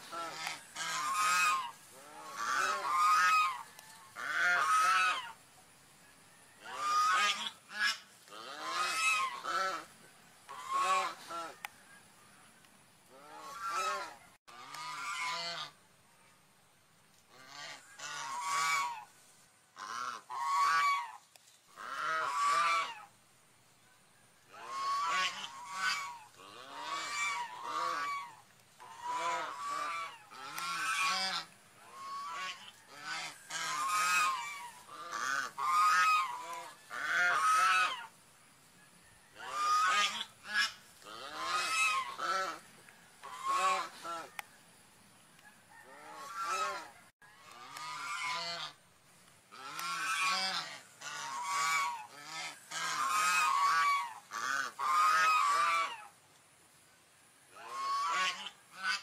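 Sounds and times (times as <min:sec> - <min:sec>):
swan honking calls: 0:00.0 - 0:05.4, 0:06.6 - 0:09.9, 0:10.5 - 0:11.6, 0:17.3 - 0:19.1, 0:19.8 - 0:23.1, 0:24.5 - 0:38.2, 0:39.4 - 0:44.4, 0:45.8 - 0:48.8, 0:49.5 - 0:56.1, 0:57.5 - 0:59.0.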